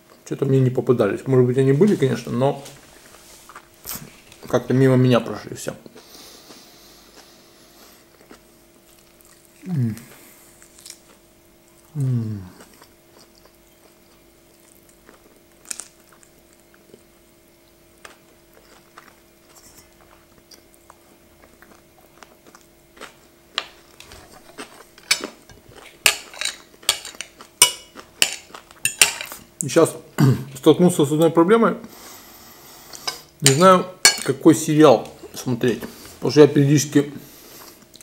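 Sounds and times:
faint hum: 0:00.0 - 0:38.0
quiet chewing: 0:05.8 - 0:29.6, 0:37.4 - 0:38.0
cutlery scraping on plate: 0:19.5 - 0:20.0, 0:24.2 - 0:29.4.

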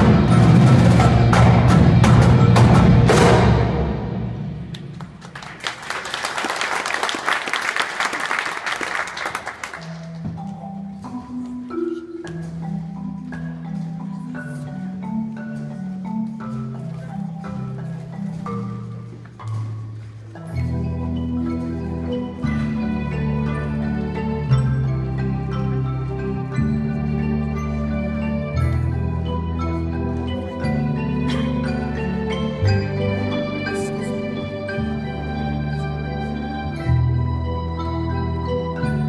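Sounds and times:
marimba mallet notes: 0:00.0 - 0:04.9, 0:09.8 - 0:39.0
drumline hit with cymbal crashes: 0:00.0 - 0:05.0.

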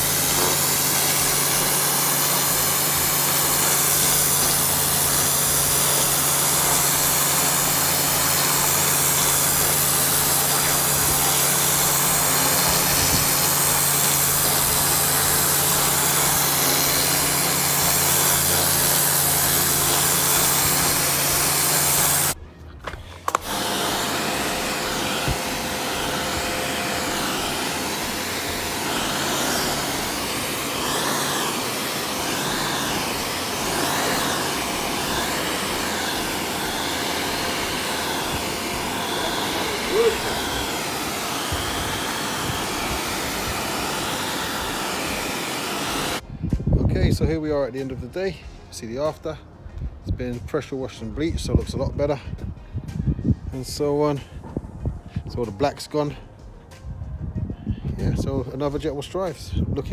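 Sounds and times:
pressure washer spraying concrete: 0:00.0 - 0:22.4, 0:23.1 - 0:46.2
quieter steady spray: 0:00.0 - 0:22.4, 0:23.1 - 0:46.2
steady hum: 0:23.2 - 0:46.3.

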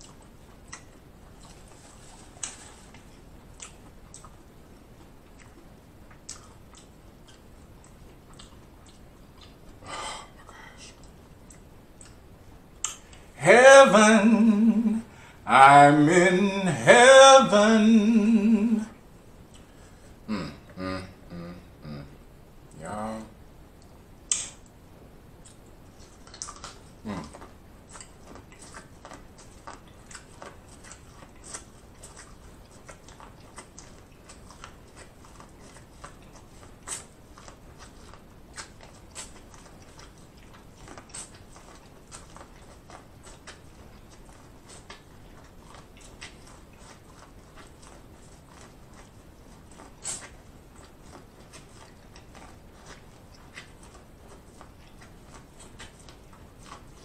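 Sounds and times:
close chewing and biting: 0:00.0 - 0:09.8, 0:25.4 - 0:57.0
wet mouth clicks and smacks: 0:12.8 - 0:13.2, 0:23.8 - 0:24.7, 0:25.4 - 0:26.8.

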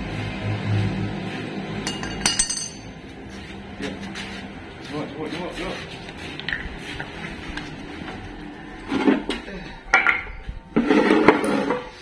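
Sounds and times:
metallic clanks and rattles: 0:01.8 - 0:03.0.

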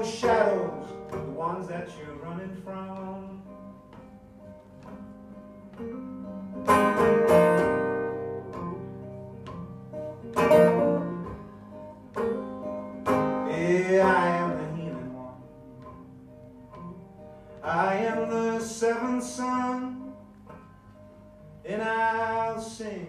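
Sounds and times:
hard guitar strums: 0:00.0 - 0:21.0
acoustic guitar chords ringing: 0:00.0 - 0:23.0.

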